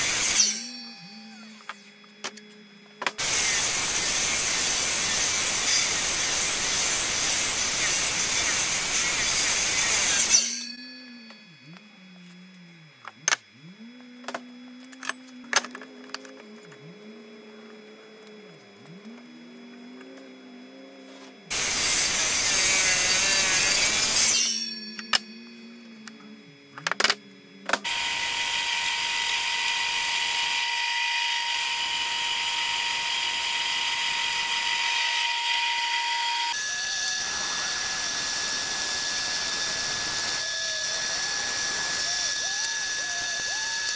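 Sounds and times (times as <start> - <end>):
bandsaw cutting metal: 0.0 - 1.8, 3.2 - 10.9, 21.5 - 25.3, 27.8 - 43.9
miter saw cutting metal: 0.0 - 1.9, 3.2 - 11.0, 21.5 - 25.4, 27.8 - 43.9.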